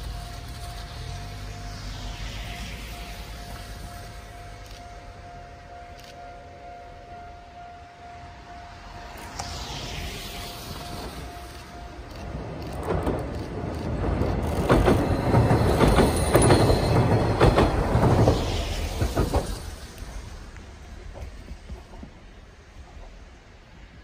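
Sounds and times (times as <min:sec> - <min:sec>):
wheels clicking over rail joints: 0:11.0 - 0:22.2.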